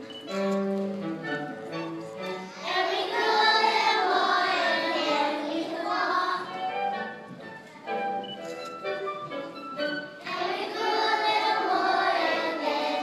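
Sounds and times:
music track: 0.0 - 13.0
children singing together: 2.4 - 7.0, 10.2 - 13.0.

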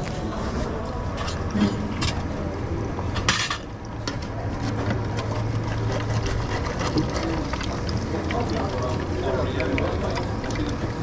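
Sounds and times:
egg frying in oil: 5.1 - 11.0.

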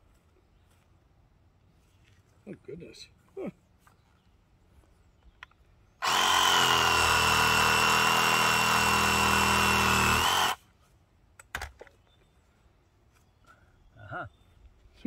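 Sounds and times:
reciprocating saw cutting roots: 6.0 - 10.6.

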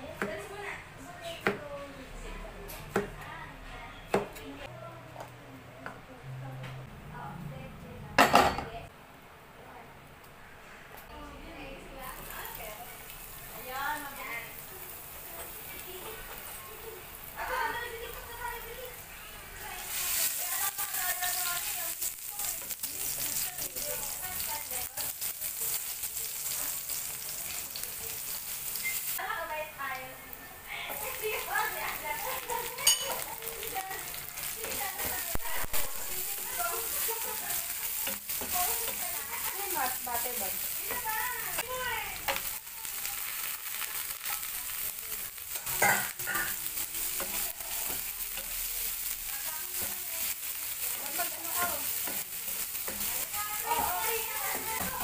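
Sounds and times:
butter sizzling in frying pan: 12.0 - 55.0.

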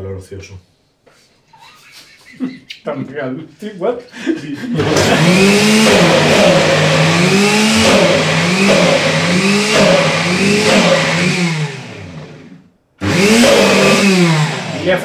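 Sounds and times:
blender motor running: 4.8 - 15.0.

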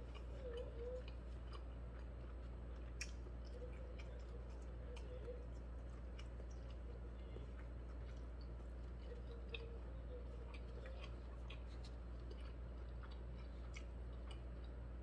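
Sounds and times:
man chewing with mouth closed: 0.0 - 15.0
steady low hum: 0.0 - 15.0.

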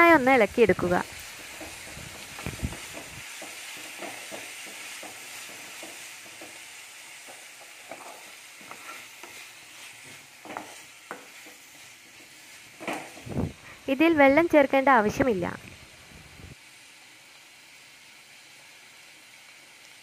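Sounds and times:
vegetables sizzling in oil: 0.0 - 20.0
wooden spatula scraping a pan: 1.2 - 13.4.

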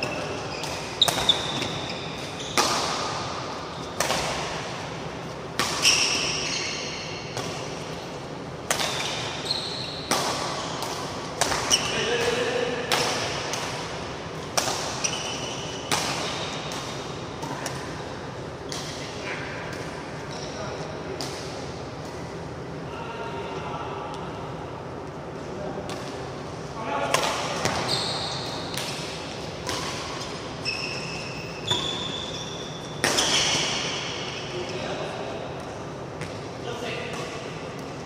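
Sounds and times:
rackets striking shuttlecock: 0.0 - 4.6, 8.6 - 15.1, 28.5 - 30.4
court shoes squeaking: 0.0 - 13.7, 14.3 - 21.4, 27.4 - 35.0.

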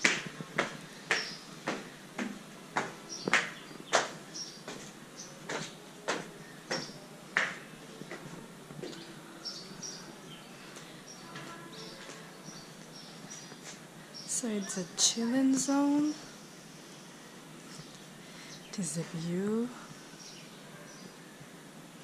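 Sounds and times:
footsteps on hard floor: 0.0 - 9.1.

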